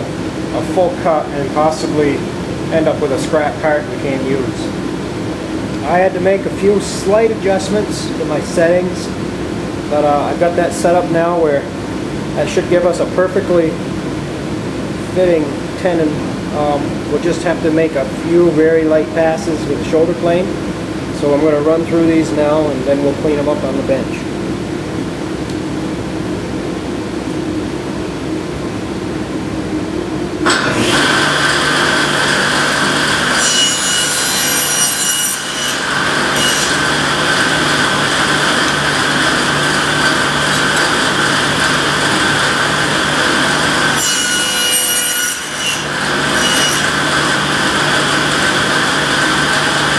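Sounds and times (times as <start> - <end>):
table saw running: 30.4 - 49.9
saw blade cutting wood: 30.5 - 49.9.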